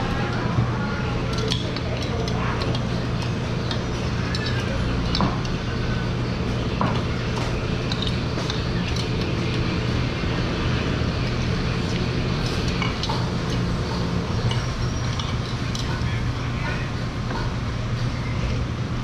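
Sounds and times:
low background hum: 0.0s - 19.0s
utensils clinking on ceramic bowls: 1.3s - 5.6s, 7.8s - 9.6s, 12.4s - 16.8s.

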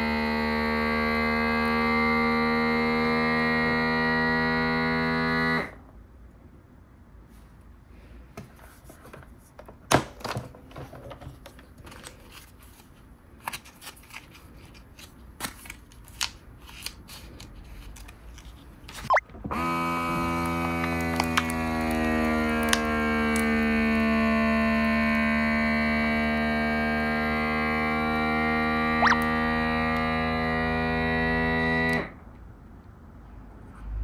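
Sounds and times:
vacuum sealer pump humming: 0.0s - 5.8s, 19.5s - 32.1s.

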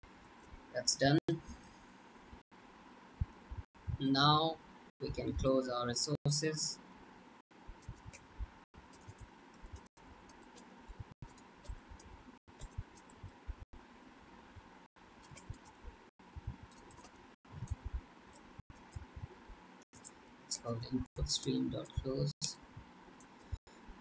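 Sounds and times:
keyboard typing clicks: 11.3s - 13.3s, 15.2s - 15.8s.

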